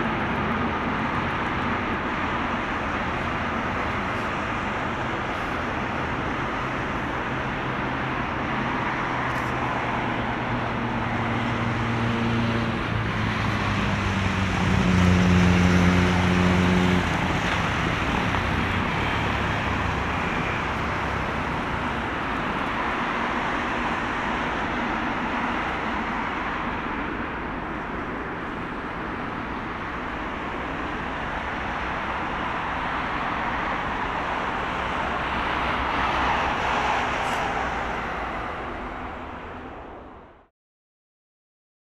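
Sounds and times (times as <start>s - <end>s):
jet engines running: 16.1s - 39.8s.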